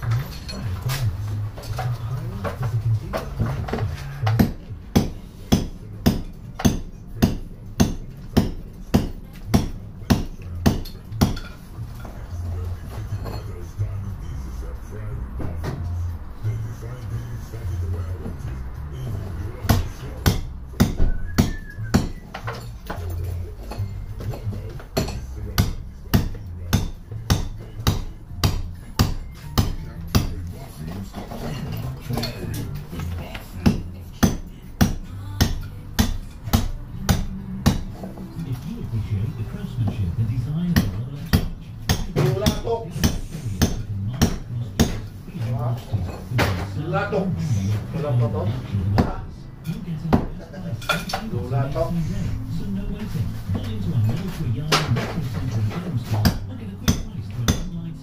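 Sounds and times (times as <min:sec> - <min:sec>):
hammer striking brickwork: 0:02.4 - 0:12.3, 0:19.6 - 0:38.1, 0:40.7 - 0:45.1, 0:53.5 - 0:57.7
hammer blows cracking: 0:03.1 - 0:11.5.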